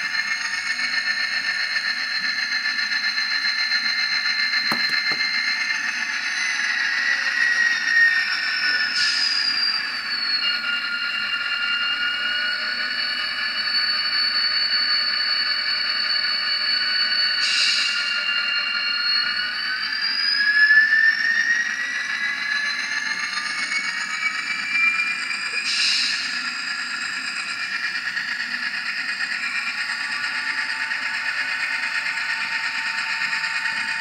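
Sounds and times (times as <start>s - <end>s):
model train brake whine: 0.0s - 5.7s, 25.0s - 34.0s.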